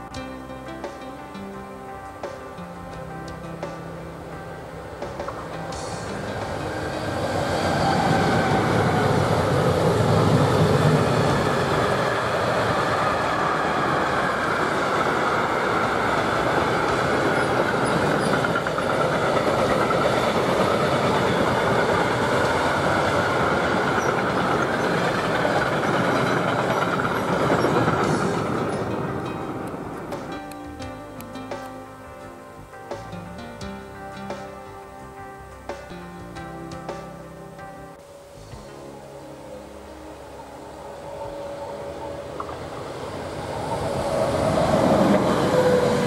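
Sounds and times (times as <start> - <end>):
electric locomotive deep rumble: 0.0 - 46.0
train wheels on rails: 4.8 - 30.9, 40.3 - 46.0.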